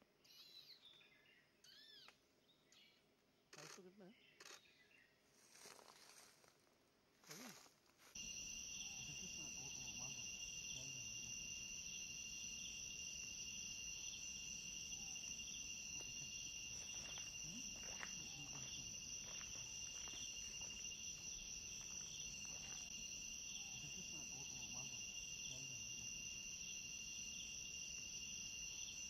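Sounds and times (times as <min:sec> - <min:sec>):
crickets trilling: 0:07.2 - 0:29.0.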